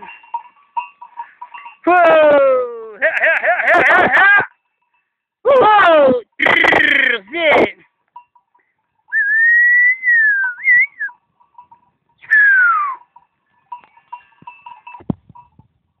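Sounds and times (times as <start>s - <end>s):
faint tinkling: 0.0s - 2.2s, 4.3s - 5.4s, 7.8s - 9.1s, 11.1s - 12.3s, 13.0s - 16.0s
herding whistle: 9.1s - 11.2s, 12.2s - 13.0s.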